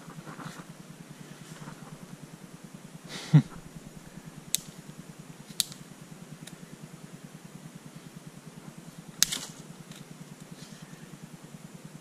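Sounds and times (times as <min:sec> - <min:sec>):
dry twig cracking: 0:04.5 - 0:04.9, 0:05.5 - 0:05.8, 0:09.2 - 0:10.1.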